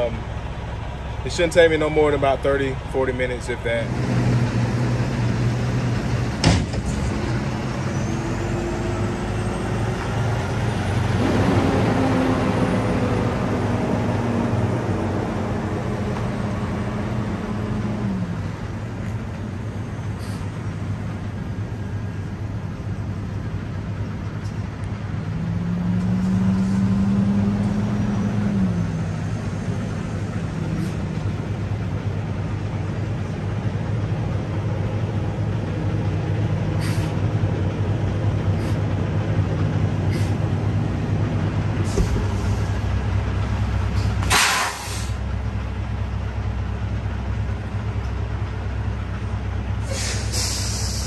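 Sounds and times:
truck diesel engine idling: 0.0 - 25.8, 27.4 - 51.0
air brake hiss: 20.2 - 20.5, 36.8 - 37.2, 38.6 - 38.8, 40.1 - 40.4, 44.0 - 45.2, 49.8 - 51.0.

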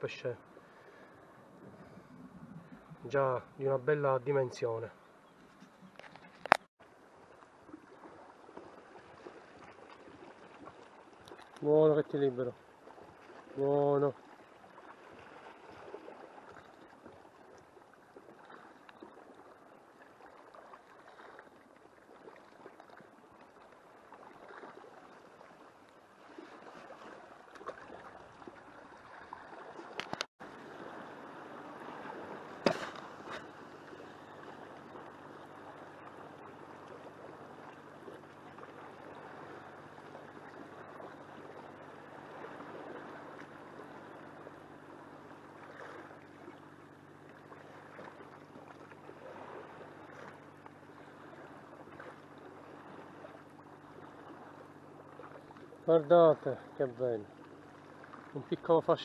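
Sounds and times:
faint steady hum: 0.0 - 59.0
sea lapping against rocks: 5.5 - 44.5, 45.5 - 55.8.

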